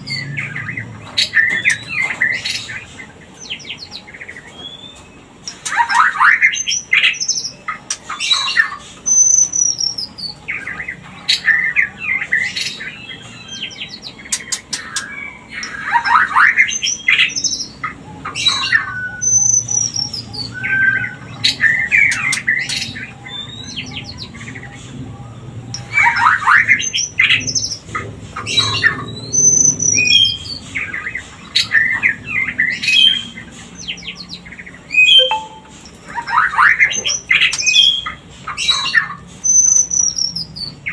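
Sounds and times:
downward sweeping bird whistles: 34.9s - 35.8s
bird chattering calls: 34.9s - 38.0s.

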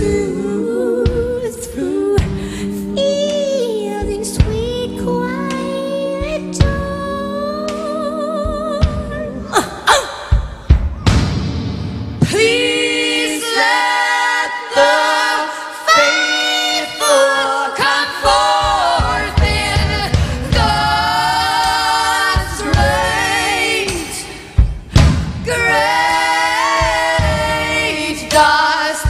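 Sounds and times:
women singing in harmony: 0.0s - 10.7s, 12.2s - 29.0s
low thuds: 2.2s - 9.4s.

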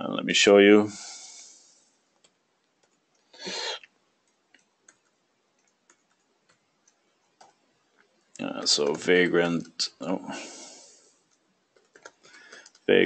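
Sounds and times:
computer keyboard key clicks: 11.8s - 12.9s.

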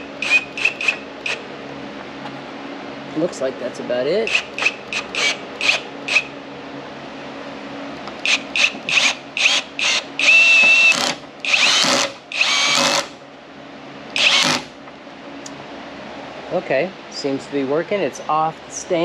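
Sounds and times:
electric drill whining under load: 0.0s - 1.4s, 4.3s - 6.3s, 8.2s - 13.2s, 14.1s - 14.8s.

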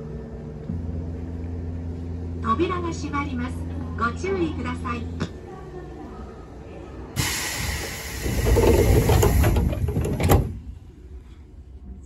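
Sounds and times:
air hissing: 7.2s - 10.5s
sliding door rumbling: 7.2s - 10.8s.

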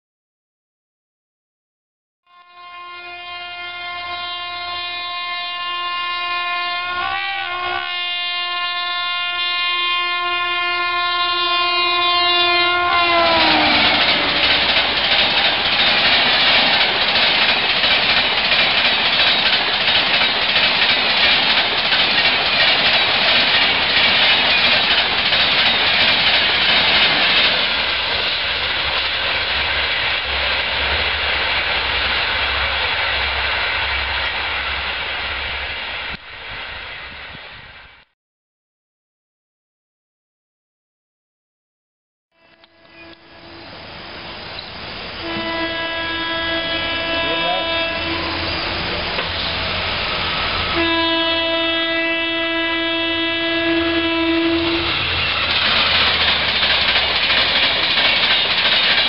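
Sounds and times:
locomotive horn blast: 2.3s - 15.0s, 42.3s - 43.9s, 45.2s - 49.0s, 50.6s - 55.2s
train wheels clattering on rails: 13.3s - 32.5s, 46.6s - 50.8s, 54.8s - 59.0s.

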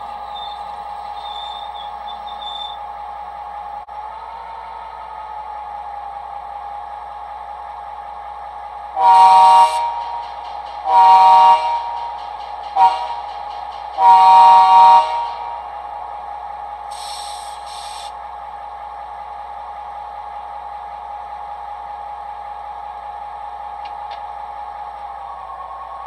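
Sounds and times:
diesel locomotive engine idling: 0.0s - 26.0s
locomotive horn: 8.9s - 12.2s, 12.8s - 13.3s, 14.0s - 15.8s.

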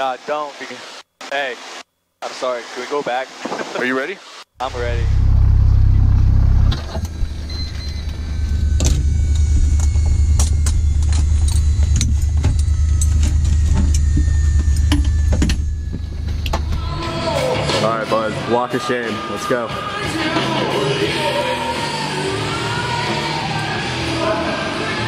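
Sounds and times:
steady low rumble: 4.6s - 17.2s.

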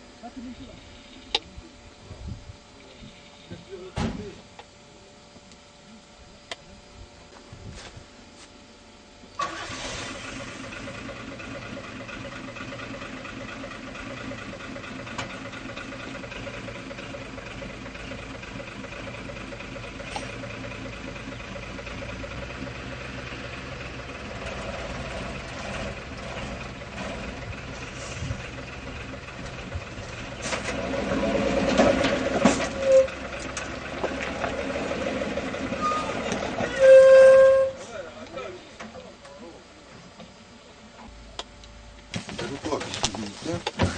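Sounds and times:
truck engine starting and running: 9.3s - 40.3s, 41.0s - 43.9s.

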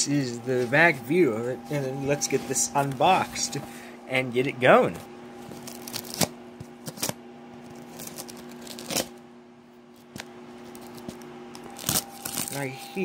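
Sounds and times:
faint steady hum: 0.0s - 13.0s
scissors snipping packaging: 10.8s - 12.7s.

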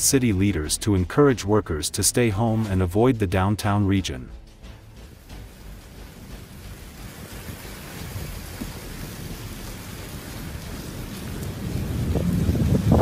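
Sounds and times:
low rumble: 4.7s - 13.0s
steady rain falling: 4.9s - 13.0s.

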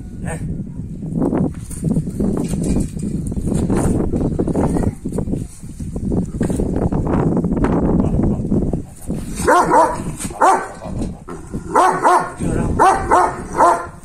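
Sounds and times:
dog barking loudly: 9.4s - 10.9s, 11.7s - 14.0s.

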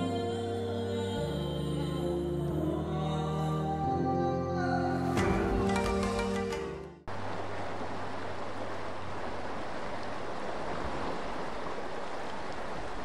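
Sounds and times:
floodwater rushing: 5.0s - 13.0s.

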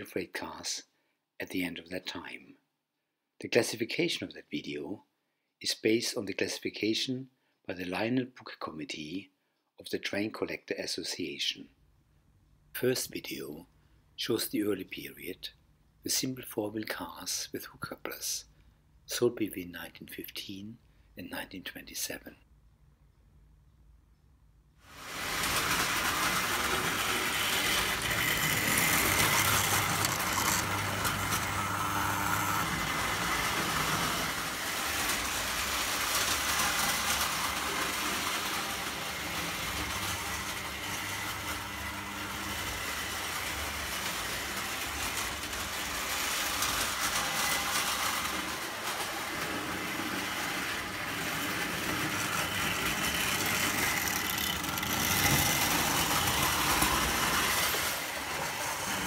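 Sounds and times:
toy train motor hum: 24.9s - 59.0s
wheels rumbling on rails: 25.0s - 49.6s.

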